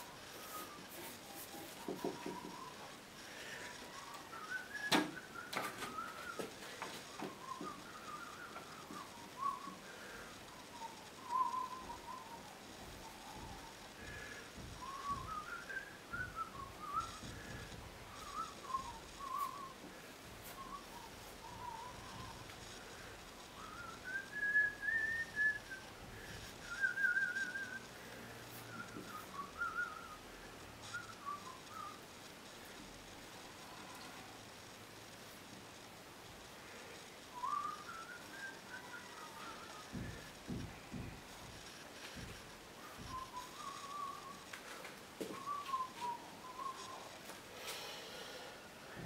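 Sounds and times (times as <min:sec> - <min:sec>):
person whistling a tune: 0:00.0 - 0:19.8, 0:23.6 - 0:32.0, 0:37.3 - 0:40.6, 0:42.8 - 0:49.0.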